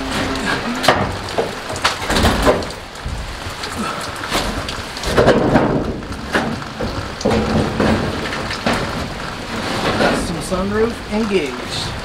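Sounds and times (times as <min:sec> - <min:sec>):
rain on sheet metal: 0:00.0 - 0:12.0
knocks and thumps on roof: 0:00.8 - 0:03.6, 0:04.3 - 0:10.4.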